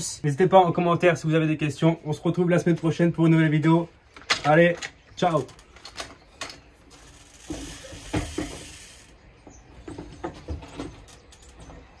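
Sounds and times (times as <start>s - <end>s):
knocks and clicks of bike: 7.3s - 8.8s.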